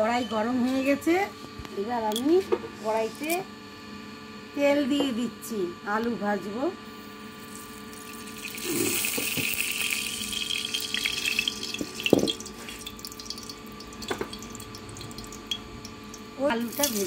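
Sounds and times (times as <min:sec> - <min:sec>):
oil sizzling in a hot pan: 0:07.3 - 0:17.0.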